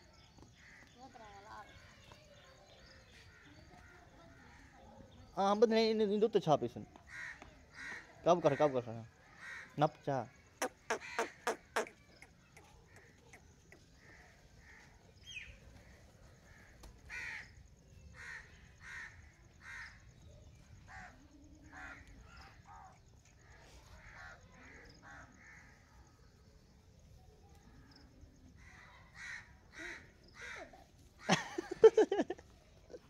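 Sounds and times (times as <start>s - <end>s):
crows cawing: 7.0s - 10.0s, 10.6s - 12.0s, 14.0s - 20.2s, 20.9s - 25.8s, 28.6s - 32.0s.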